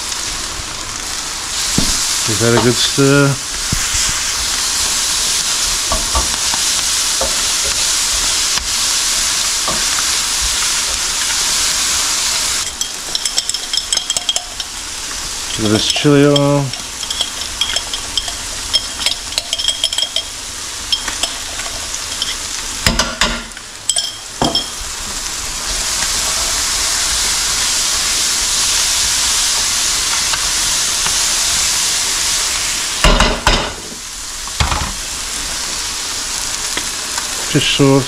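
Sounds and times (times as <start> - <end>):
vegetables sizzling in a pan: 0.0 - 38.0
metal utensils clinking and scraping: 12.6 - 14.8, 15.5 - 22.4.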